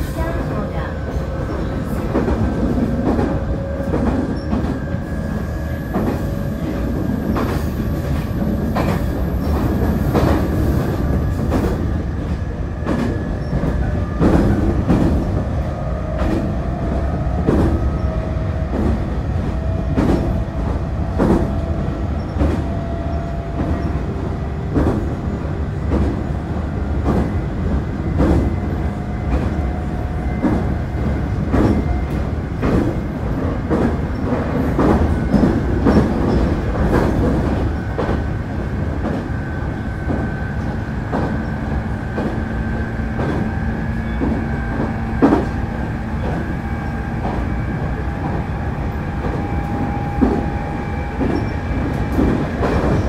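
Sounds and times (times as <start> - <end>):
train wheels rumbling on rails: 0.0 - 53.0.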